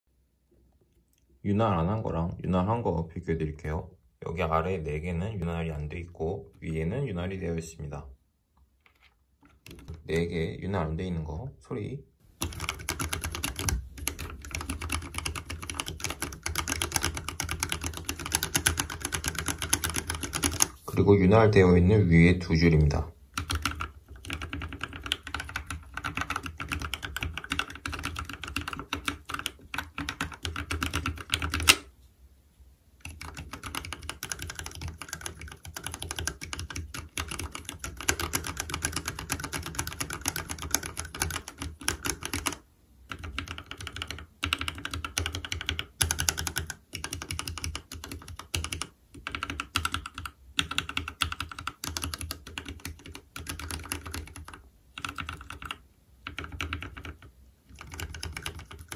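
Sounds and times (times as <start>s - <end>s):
keyboard typing clacks: 12.4s - 20.7s, 23.4s - 31.8s, 33.0s - 58.9s.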